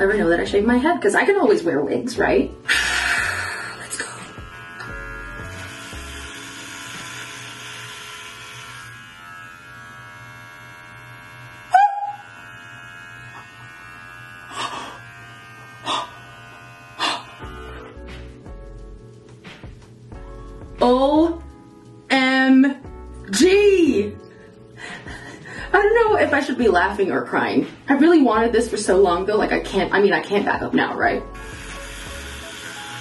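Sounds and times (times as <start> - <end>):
background music: 0.0 - 9.5, 15.0 - 33.0
electric hair clippers humming: 2.7 - 18.4, 31.2 - 33.0.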